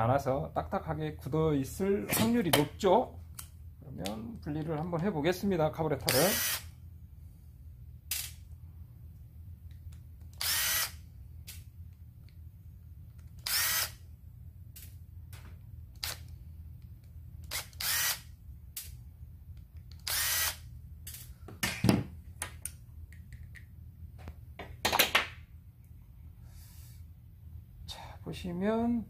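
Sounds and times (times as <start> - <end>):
cordless drill whining: 10.4 - 10.9, 13.4 - 13.9, 17.5 - 18.2.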